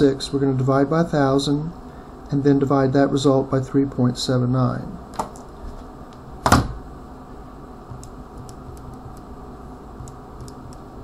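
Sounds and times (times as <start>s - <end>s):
low room hum: 0.0s - 11.0s
calculator keys clicking: 7.9s - 9.2s.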